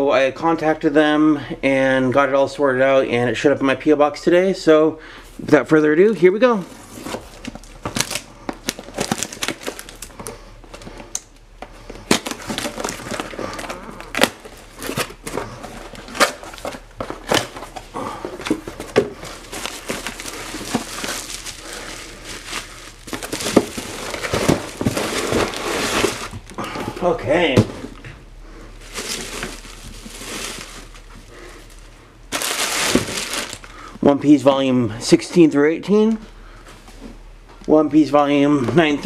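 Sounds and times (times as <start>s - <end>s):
plastic wrap crinkling: 6.4s - 28.0s, 28.7s - 34.0s
cardboard snapping and scraping: 11.9s - 21.5s, 22.4s - 26.6s.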